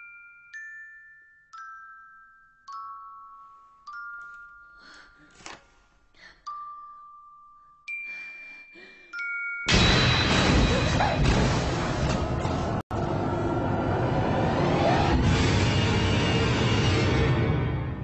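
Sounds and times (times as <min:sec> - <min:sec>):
chime-like notes: 0:00.0 - 0:05.4, 0:06.5 - 0:10.8
harsh wall of noise: 0:10.0 - 0:17.6.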